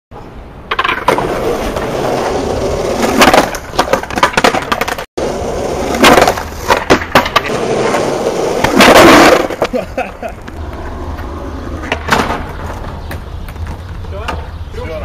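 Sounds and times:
skateboard wheels rolling on asphalt: 0.2s - 15.0s
skateboard deck clacks: 2.9s - 5.0s, 5.9s - 14.5s.

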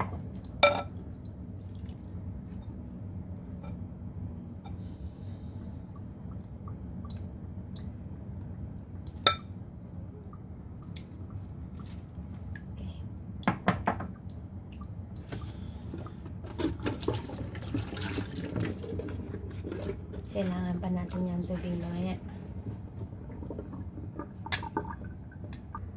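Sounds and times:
steady low hum: 0.0s - 25.9s
water drips: 5.8s - 9.2s, 14.2s - 15.3s.

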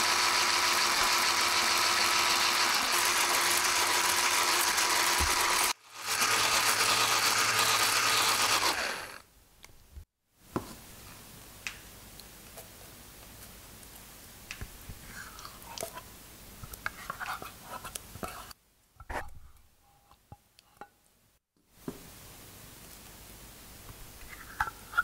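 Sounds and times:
electric hand mixer whining: 0.0s - 9.2s.

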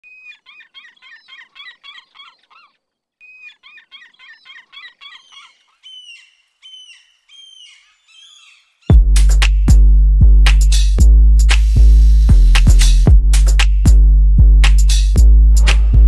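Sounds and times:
gulls calling: 0.0s - 9.0s.

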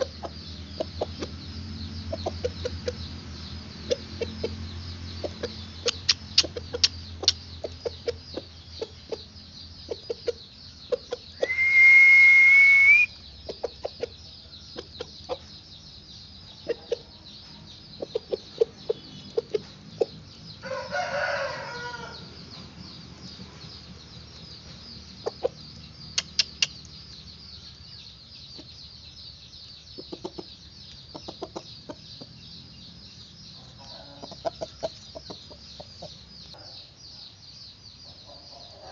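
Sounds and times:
chickens clucking: 0.0s - 29.0s, 29.7s - 36.9s
loud high whistle: 11.4s - 13.1s
rooster crowing: 11.4s - 13.1s, 20.6s - 22.3s, 33.6s - 34.3s.

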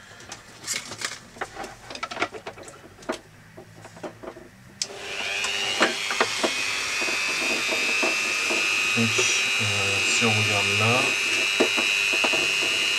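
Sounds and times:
rotary tool high whine: 4.8s - 12.9s.

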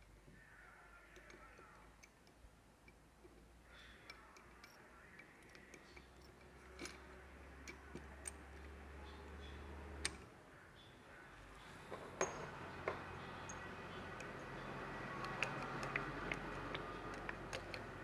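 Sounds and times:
metal gear clicks and taps: 3.8s - 8.8s, 12.2s - 18.0s.

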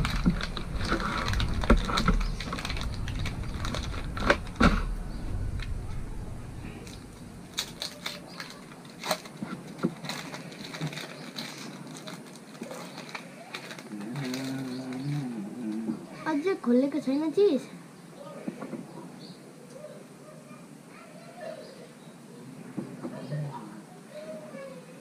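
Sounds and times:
paper wrapping crinkling: 0.0s - 5.8s, 6.7s - 15.8s
low background rumble: 0.0s - 9.4s.

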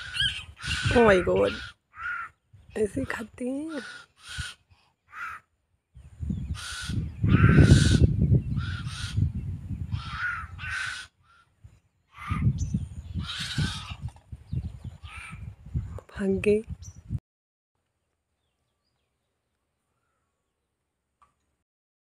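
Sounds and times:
crows cawing: 0.0s - 2.4s, 3.7s - 5.5s, 6.6s - 9.2s, 10.0s - 12.5s, 15.1s - 15.4s.

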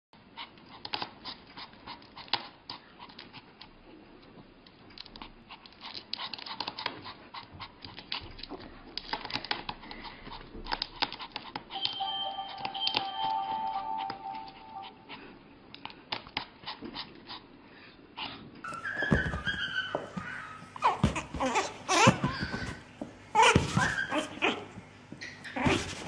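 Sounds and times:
music with held notes: 11.8s - 15.3s.

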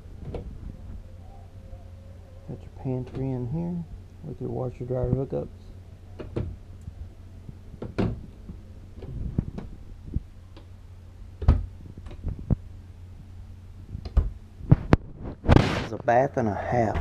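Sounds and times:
low steady hum: 0.0s - 17.0s
cabinet doors clicking and knocking: 7.8s - 8.2s, 11.4s - 12.2s.

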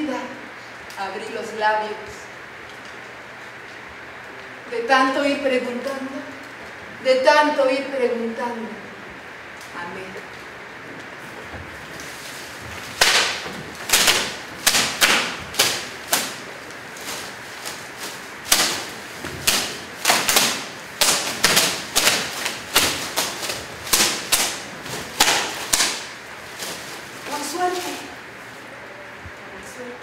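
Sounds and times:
leafy branches slapping wet floor: 9.5s - 28.6s.

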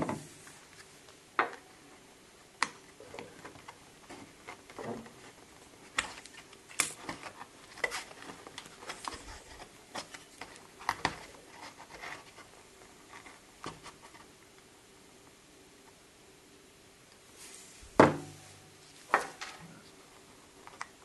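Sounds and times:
plastic rubbing: 3.0s - 14.3s.

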